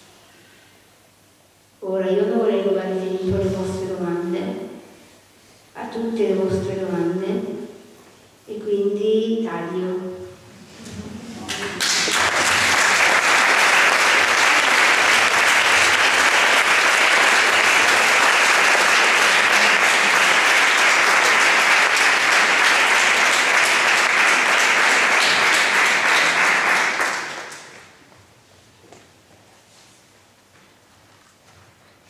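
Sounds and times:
audience applauding: 11.4 - 28.0.

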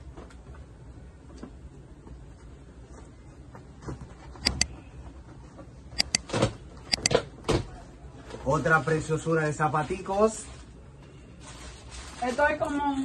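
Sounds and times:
mouse clicks: 4.4 - 4.7, 6.0 - 6.2, 6.9 - 7.1.

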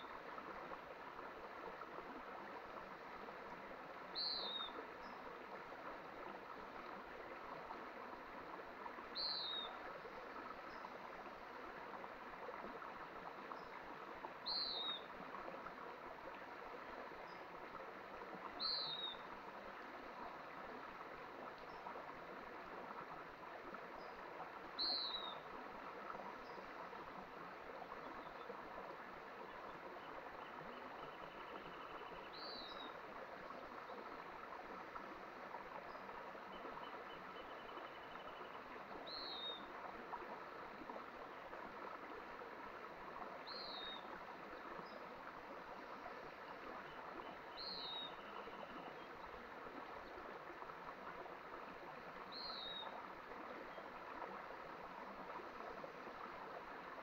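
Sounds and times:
mountain stream running: 0.0 - 57.0
faint rapid bird trill: 46.9 - 49.2.

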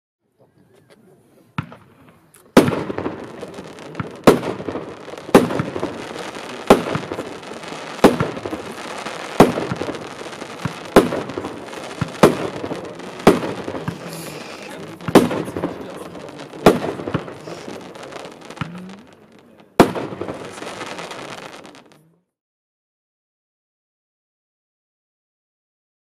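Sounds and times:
firework bangs: 1.6 - 22.0
firework fizz and pop: 1.6 - 22.0
firework crackling hiss: 2.5 - 22.0.

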